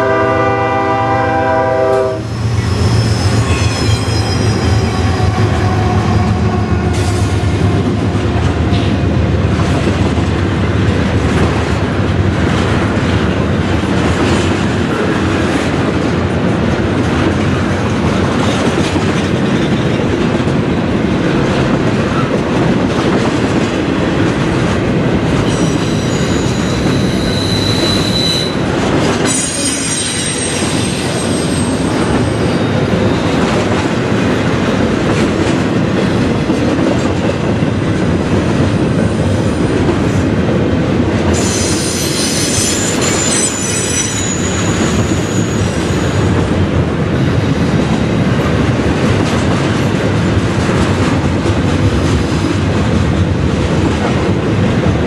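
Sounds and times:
train wheels rumbling on rails: 0:00.0 - 0:55.0
high wheel squeals: 0:02.2 - 0:06.2, 0:25.4 - 0:28.6, 0:29.3 - 0:33.3, 0:41.4 - 0:46.3.

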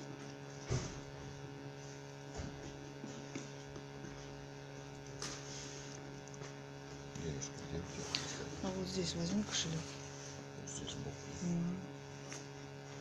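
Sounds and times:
electrical hum: 0:00.0 - 0:13.0
short thump: 0:00.7 - 0:01.1.

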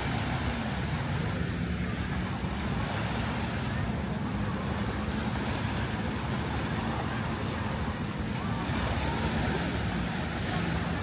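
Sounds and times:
surf washing onto beach: 0:00.0 - 0:11.0.

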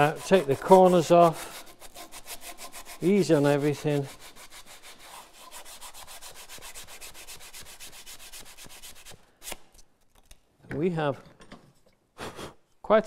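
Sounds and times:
sandpaper rubbing on wood: 0:00.0 - 0:09.6.

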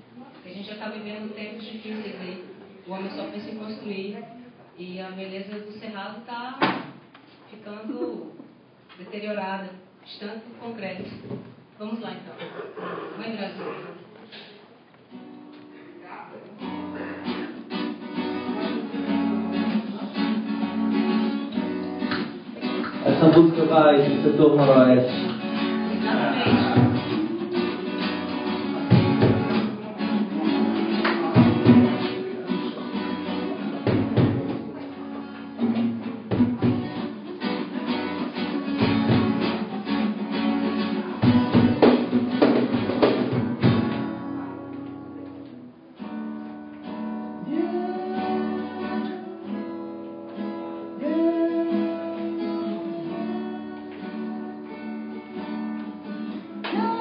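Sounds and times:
cajon beats: 0:06.6 - 0:07.3, 0:16.6 - 0:49.2, 0:50.3 - 0:57.0
acoustic guitars strumming: 0:12.4 - 0:57.0
person singing: 0:26.0 - 0:32.8, 0:47.4 - 0:50.1, 0:50.9 - 0:55.4, 0:56.7 - 0:57.0.

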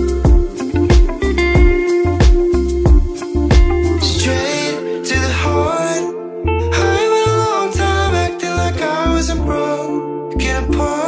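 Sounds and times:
pop music with drum beat: 0:00.0 - 0:05.4.

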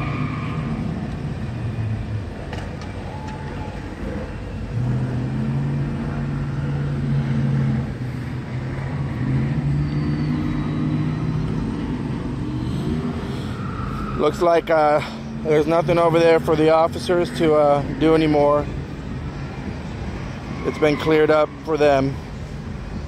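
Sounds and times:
street noise: 0:00.0 - 0:23.0
car engine revving high: 0:04.1 - 0:14.4.

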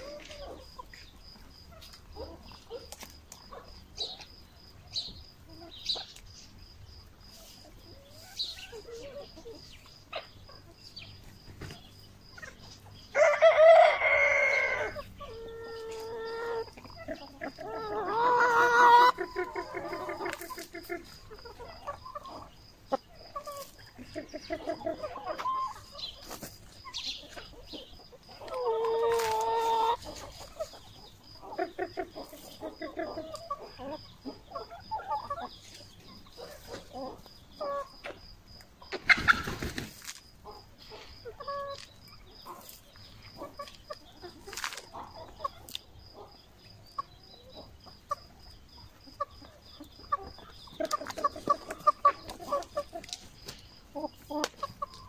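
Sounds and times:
hens clucking: 0:00.0 - 0:55.0
hen drawn-out call: 0:13.2 - 0:20.3.

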